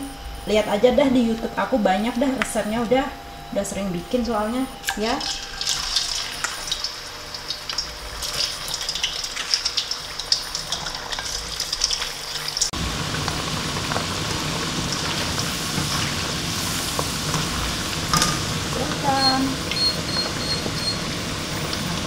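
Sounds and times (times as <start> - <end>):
fries deep-frying in hot oil: 4.8 - 22.0.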